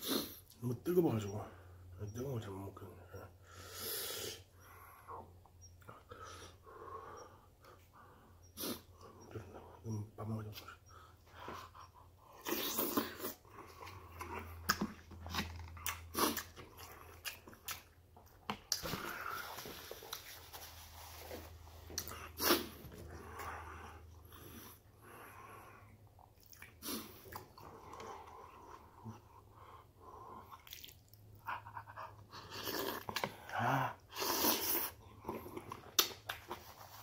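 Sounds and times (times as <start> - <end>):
person slurping noodles: 12.4 - 13.4, 22.0 - 23.4, 32.4 - 35.6.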